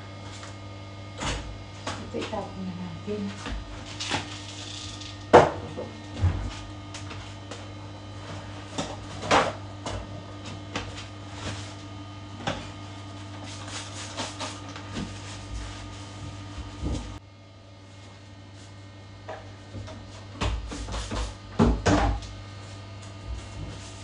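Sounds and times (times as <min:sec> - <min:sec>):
steady low hum: 0:00.0 - 0:24.0
cleaning items knocking and clattering: 0:05.3 - 0:07.2, 0:19.3 - 0:22.2.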